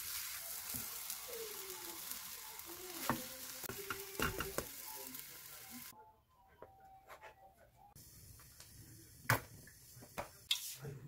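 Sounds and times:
omelette sizzling in frying pan: 0:00.0 - 0:05.9.

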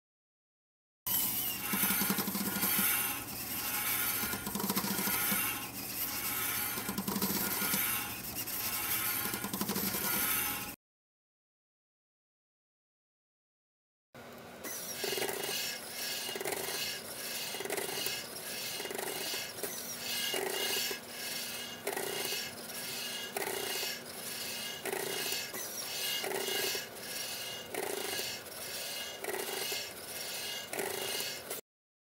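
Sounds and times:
bursts of air hissing from valves: 0:14.7 - 0:31.6.

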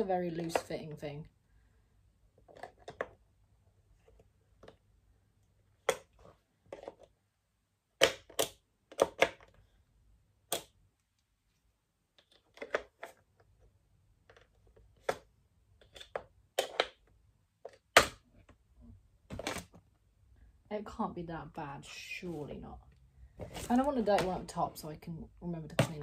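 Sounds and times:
plastic parts clicking and knocking: 0:02.4 - 0:03.2, 0:05.8 - 0:07.1, 0:08.0 - 0:09.7, 0:12.1 - 0:18.6.

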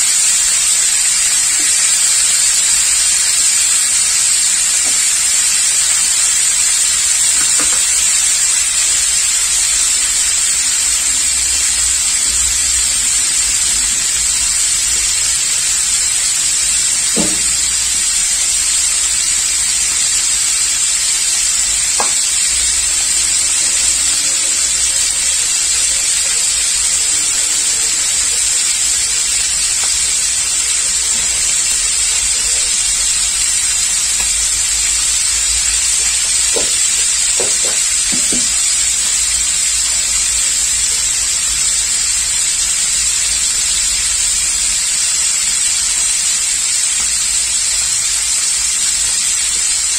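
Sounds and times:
fish frying in hot oil: 0:00.0 - 0:49.9
oil popping: 0:00.3 - 0:39.7.

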